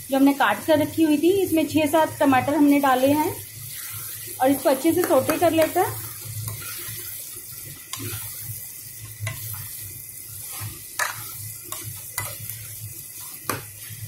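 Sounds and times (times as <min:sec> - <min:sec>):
vegetables sizzling in hot oil: 0:00.0 - 0:14.0
metal spoon scraping pan: 0:10.4 - 0:12.6.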